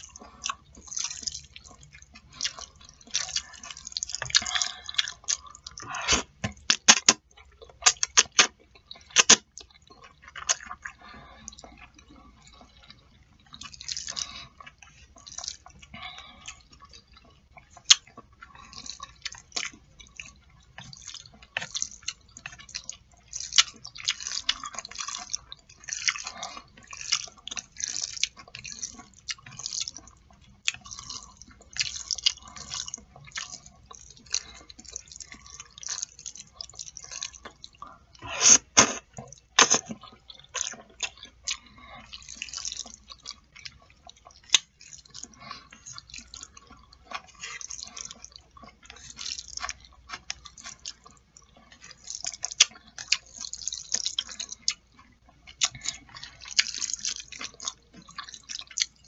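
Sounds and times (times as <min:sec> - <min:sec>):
wet chewing and smacking: 0:00.0 - 0:59.0.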